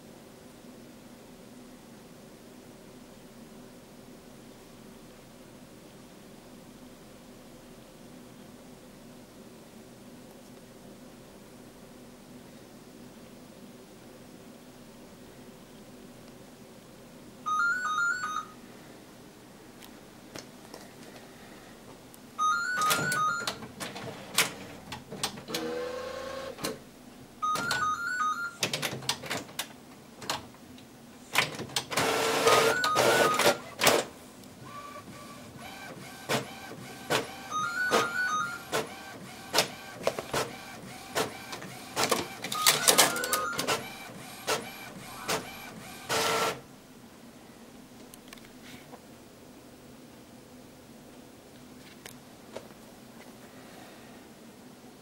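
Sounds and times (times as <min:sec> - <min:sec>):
inkjet printer motors running: 0:22.8 - 0:26.8, 0:31.4 - 0:46.6
printer clicks and clunks: 0:22.8 - 0:26.8, 0:27.5 - 0:27.9, 0:28.6 - 0:30.5, 0:31.4 - 0:34.1, 0:34.7 - 0:46.6.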